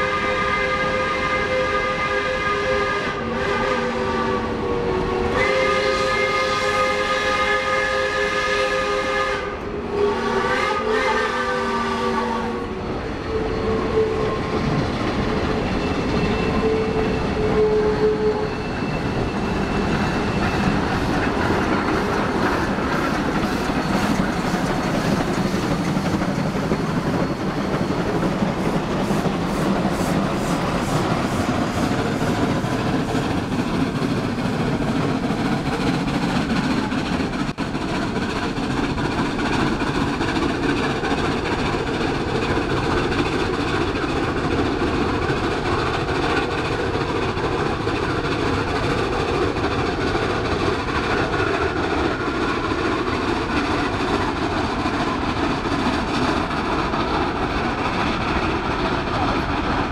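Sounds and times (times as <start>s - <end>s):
steam locomotive chime whistle: 0.0s - 14.8s, 15.5s - 32.5s
steam locomotive exhaust chuffing: 0.0s - 59.9s.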